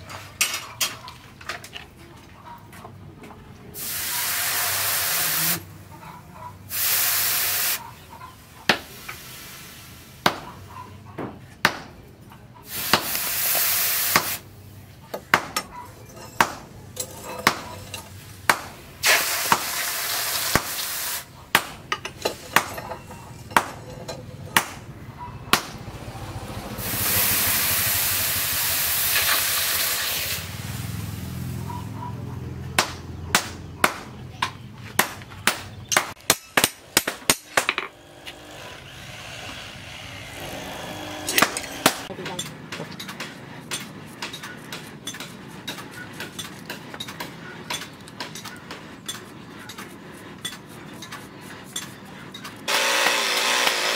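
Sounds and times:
hot steel hissing in water: 0:03.8 - 0:05.7, 0:06.7 - 0:07.8, 0:08.8 - 0:10.2, 0:12.7 - 0:14.4, 0:19.0 - 0:21.3, 0:26.8 - 0:31.5.

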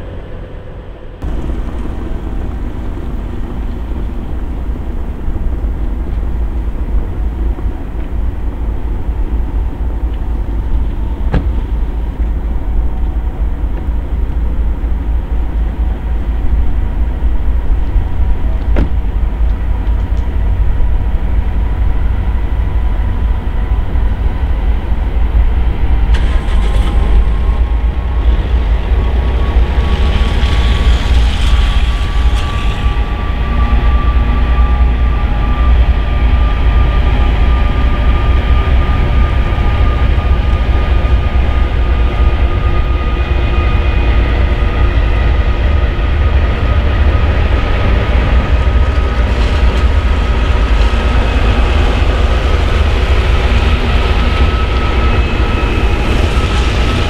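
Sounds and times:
locomotive diesel engine rumbling: 0:00.0 - 0:57.0.

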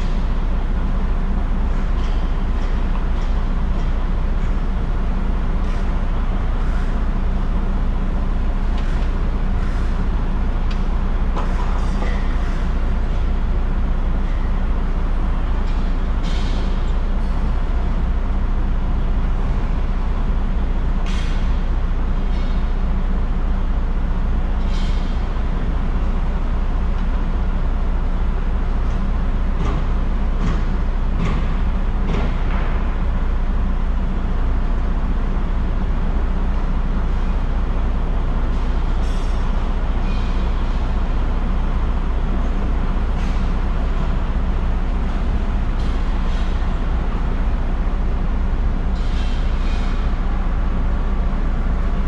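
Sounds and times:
heavy vehicle engine drone: 0:00.0 - 0:52.0
road noise: 0:00.0 - 0:52.0.

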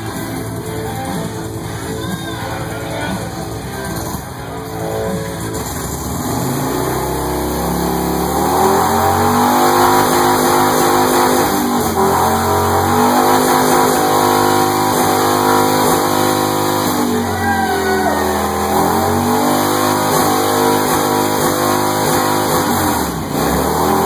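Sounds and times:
motorcycle engine revving hard: 0:05.1 - 0:24.0.

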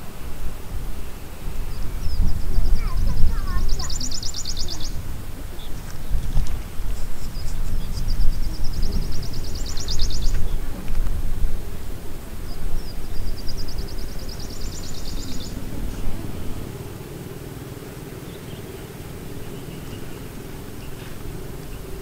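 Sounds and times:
low rumble: 0:00.0 - 0:22.0
small bird trilling: 0:01.6 - 0:06.2, 0:06.9 - 0:10.7, 0:12.4 - 0:17.4.

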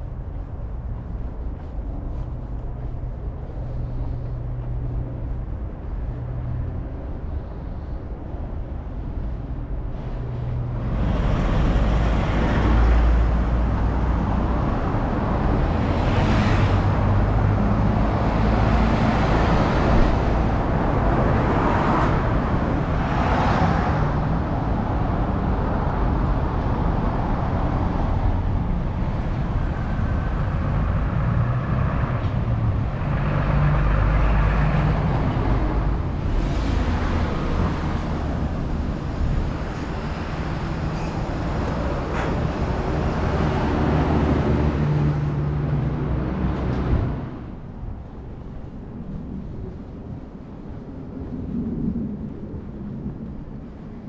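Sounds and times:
engine hum: 0:00.0 - 0:54.0
vehicles passing: 0:00.0 - 0:54.0.

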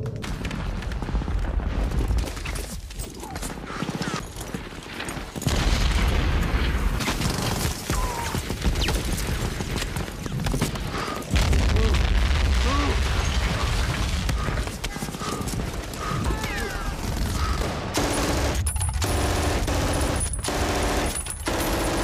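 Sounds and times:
machine-gun and rifle fire: 0:05.4 - 0:22.0
heavy explosion booms: 0:11.3 - 0:14.4.

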